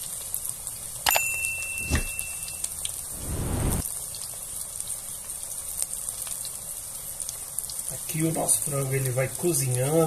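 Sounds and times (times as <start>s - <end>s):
chicken deep-frying in oil: 0.0s - 3.2s, 3.8s - 10.0s
thin ringing tone: 1.1s - 3.1s
low rumble: 3.0s - 3.8s.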